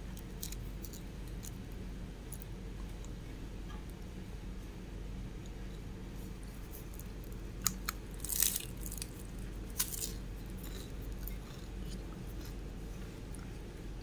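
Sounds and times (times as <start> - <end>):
steady low hum: 0.0 - 14.0
crunchy rustle: 8.1 - 13.5.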